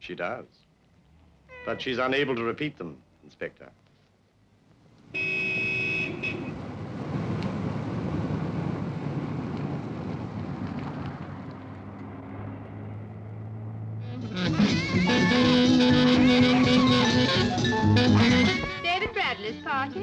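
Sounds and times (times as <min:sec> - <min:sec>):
street traffic: 0:00.0 - 0:20.0
car horn: 0:01.5 - 0:02.4, 0:05.1 - 0:06.6, 0:14.0 - 0:18.9.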